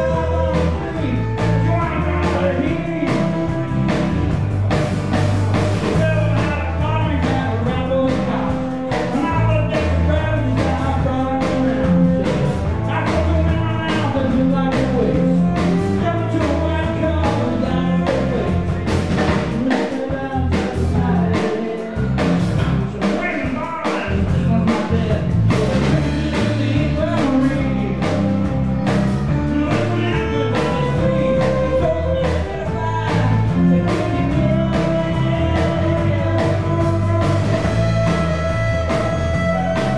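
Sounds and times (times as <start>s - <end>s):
man singing: 0.0s - 4.4s, 5.5s - 39.9s
bass: 0.0s - 39.9s
drum kit beat: 0.0s - 39.9s
fiddle: 26.6s - 39.9s.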